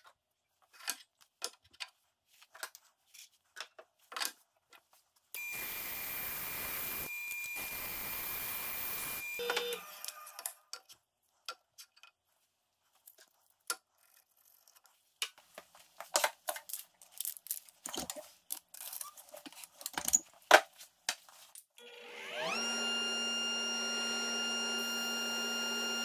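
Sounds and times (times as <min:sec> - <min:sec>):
bandsaw running: 0:05.4 - 0:10.2, 0:21.9 - 0:26.0.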